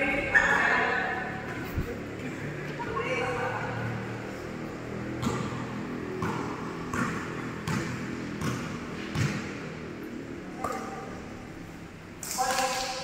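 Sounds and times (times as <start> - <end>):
basketball bouncing on wood: 5.2 - 9.6.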